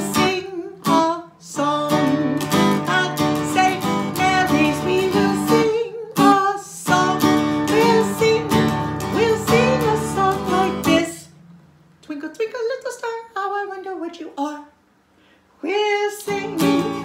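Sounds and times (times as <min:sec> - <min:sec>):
woman singing: 0:00.0 - 0:11.4, 0:15.6 - 0:17.0
acoustic guitar strumming: 0:00.0 - 0:11.7, 0:16.2 - 0:17.0.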